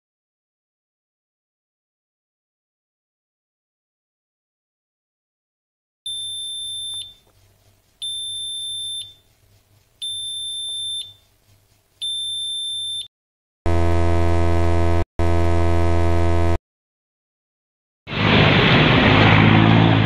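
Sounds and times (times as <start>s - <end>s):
harsh low buzzer: 13.7s - 16.6s
high electronic beep: 13.7s - 16.6s.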